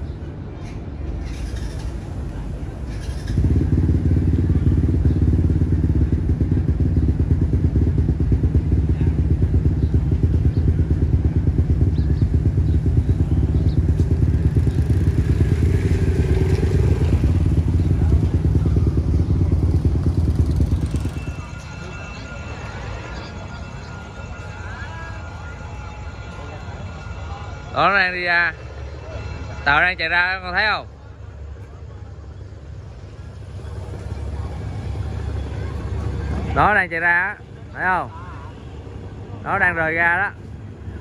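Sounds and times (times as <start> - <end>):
motorcycle engine running: 1.3 - 22.3, 32.1 - 37.0.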